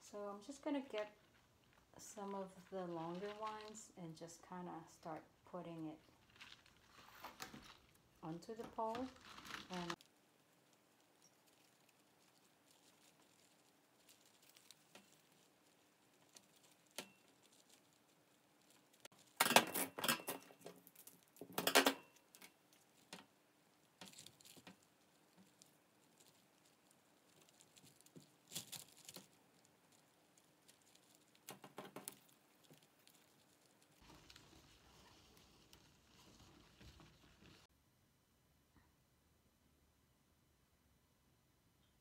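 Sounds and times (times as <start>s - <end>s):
hands clicking and rustling: 8.6s - 34.8s.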